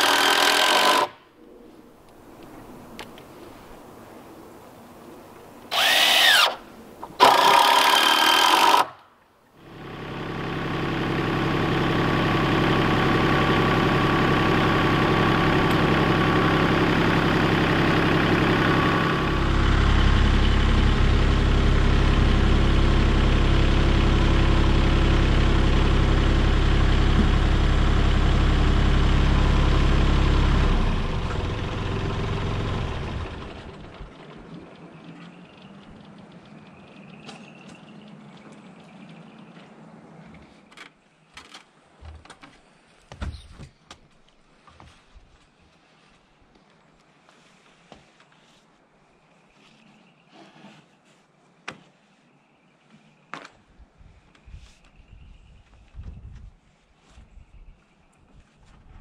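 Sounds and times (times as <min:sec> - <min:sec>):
tractor engine running: 0:00.0 - 0:01.2, 0:05.7 - 0:08.9, 0:09.6 - 0:40.6
cordless power driver bursts: 0:05.7 - 0:06.6, 0:07.2 - 0:09.0.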